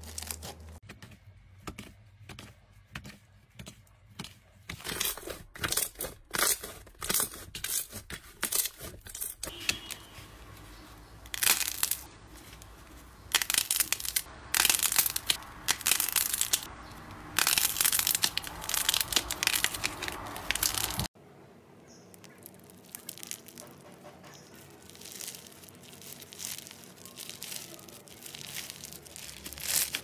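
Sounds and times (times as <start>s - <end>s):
slime crackling and popping: 11.3s - 12.1s, 13.3s - 16.7s, 17.3s - 21.1s, 22.2s - 23.7s, 24.6s - 30.0s.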